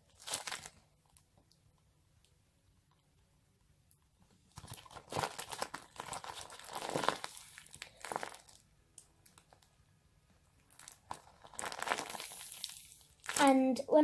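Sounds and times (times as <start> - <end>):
taped paper crinkling: 0.1 - 1.2, 4.5 - 8.6, 10.7 - 13.6.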